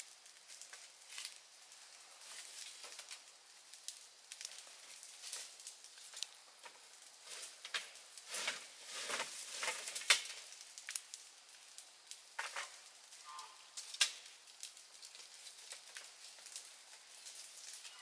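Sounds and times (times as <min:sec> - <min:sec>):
dry leaves rustling: 0:00.0 - 0:18.0
twigs snapping: 0:02.2 - 0:11.2, 0:13.8 - 0:17.9.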